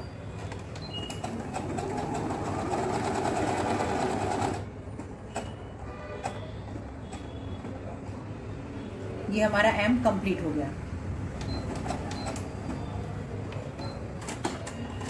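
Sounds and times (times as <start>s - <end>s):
sewing machine stitching: 0.8s - 4.7s.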